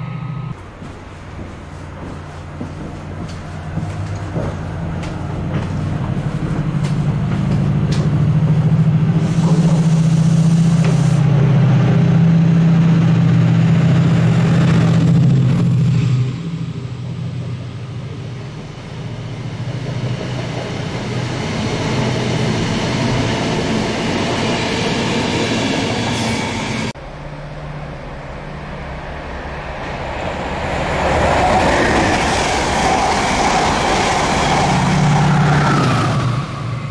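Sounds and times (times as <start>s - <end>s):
diesel locomotive engine drone: 0.0s - 36.9s
coach wheels rolling over rails: 0.8s - 15.8s.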